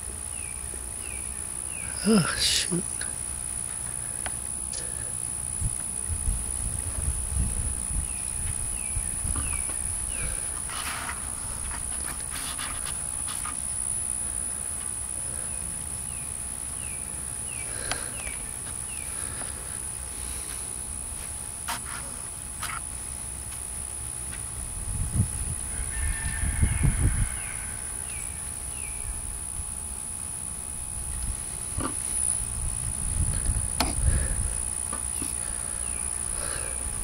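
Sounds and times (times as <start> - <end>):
high-pitched insect drone: 0.0 - 37.0
wind rumble on microphone: 5.6 - 10.5, 24.6 - 27.8, 32.4 - 34.7.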